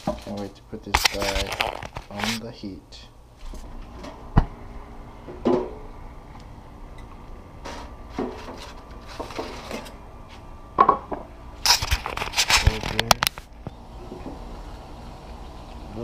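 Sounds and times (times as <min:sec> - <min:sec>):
aluminium foil crinkling: 0:00.0 - 0:02.4, 0:11.6 - 0:13.6.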